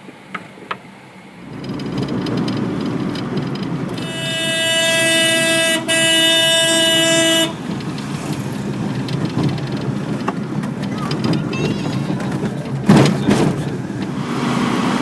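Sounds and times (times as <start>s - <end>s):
vehicle engine and road noise: 0.0s - 15.0s
vehicle horn blasts: 3.9s - 7.7s.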